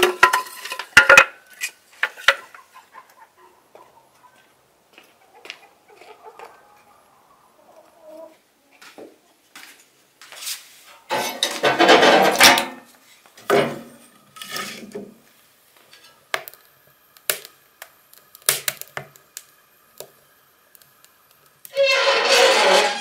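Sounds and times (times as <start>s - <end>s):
wood fire crackling: 13.3s - 23.0s.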